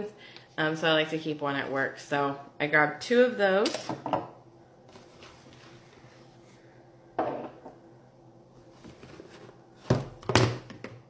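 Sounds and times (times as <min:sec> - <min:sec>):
rustling and handling items: 0:04.8 - 0:07.7, 0:08.5 - 0:10.9.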